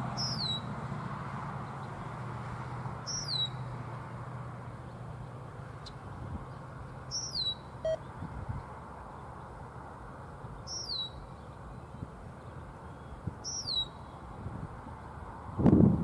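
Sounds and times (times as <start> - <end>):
bird whistling call: 0.2 - 0.7, 3.1 - 3.6, 7.1 - 8.1, 10.7 - 11.3, 13.4 - 14.0.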